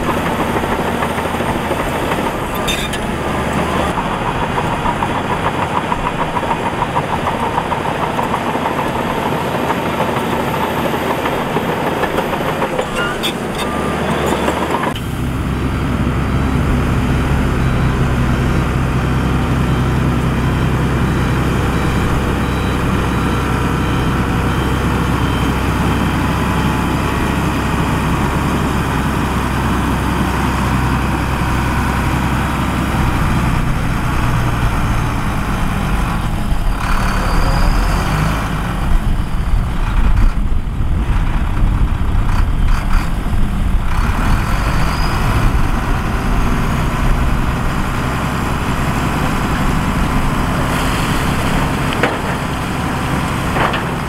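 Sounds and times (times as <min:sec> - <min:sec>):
heavy diesel machinery engines: 0:00.0 - 0:54.0.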